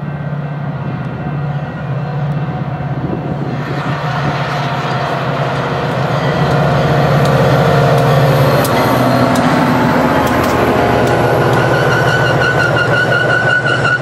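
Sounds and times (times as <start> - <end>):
diesel locomotive engine running: 0.0 - 14.0
train wheels clicking over rails: 3.4 - 14.0.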